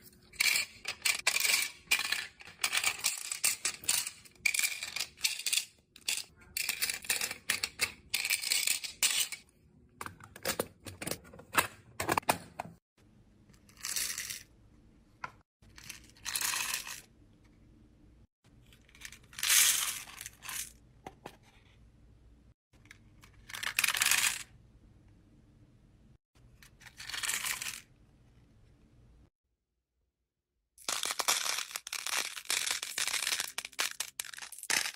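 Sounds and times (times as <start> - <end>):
beads rattling into plastic organizer: 30.8 - 34.9
plastic charms clattering: 30.8 - 34.9.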